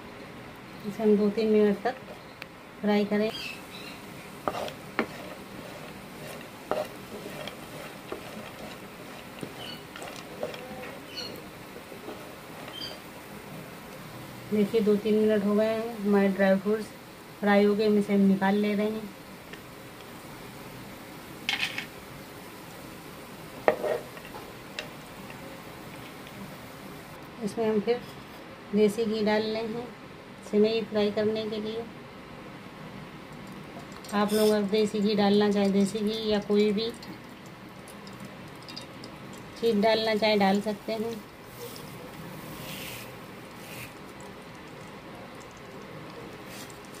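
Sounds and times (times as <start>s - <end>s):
fruits sizzling in a pan: 0.6s - 27.2s, 33.6s - 47.0s
spatula scraping a pan: 4.0s - 13.0s, 23.7s - 24.3s, 34.3s - 34.6s.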